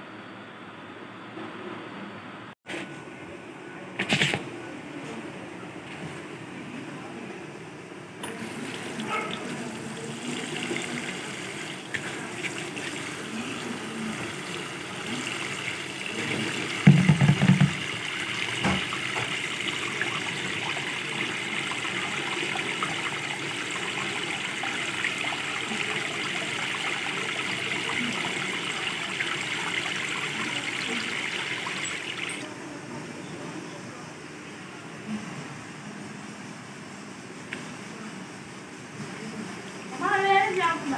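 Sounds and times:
tap water running into bowl: 8.2 - 32.4.

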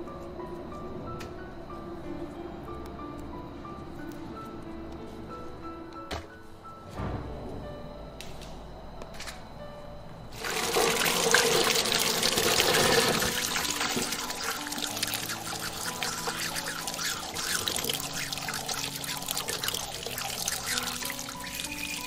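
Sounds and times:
water pouring into a steel basin: 10.4 - 22.0
hands rubbing beans: 10.6 - 22.0.

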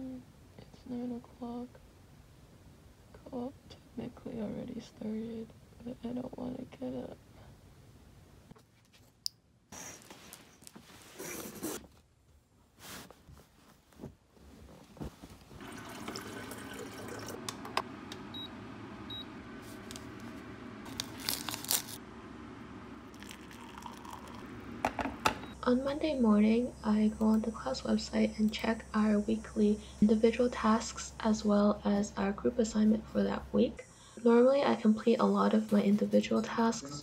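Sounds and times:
rustling and handling noises: 9.8 - 15.6, 19.6 - 22.0
water running into kettle: 15.6 - 17.7, 23.1 - 25.3.

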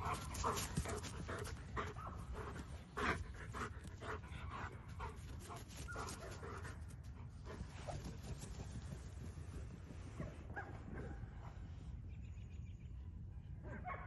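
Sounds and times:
dog panting: 0.0 - 8.4.

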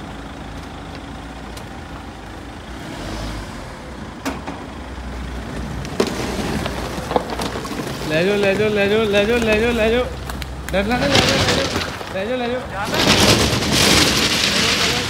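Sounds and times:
stones clicking under tyres: 0.0 - 2.5, 4.2 - 15.0
car engine at low revs: 0.0 - 11.0
tyres on gravel: 0.0 - 15.0.

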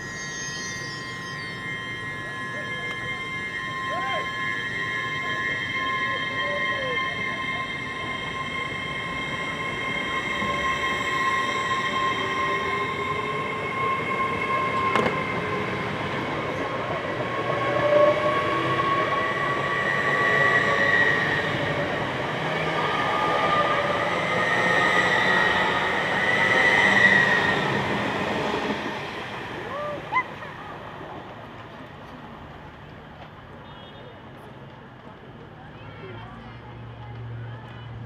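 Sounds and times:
steady high whine: 0.0 - 12.2.

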